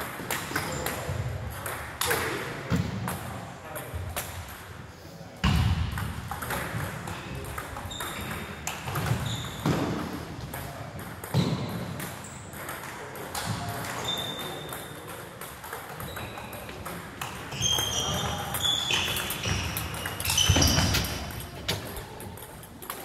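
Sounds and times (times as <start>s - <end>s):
table tennis balls clicking: 12.0s - 23.0s.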